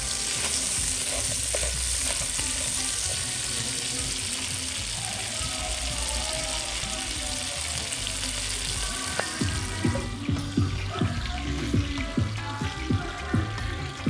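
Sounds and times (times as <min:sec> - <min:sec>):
crayfish sizzling in wok: 0:00.0 - 0:14.0
spatula stirring: 0:00.2 - 0:03.4.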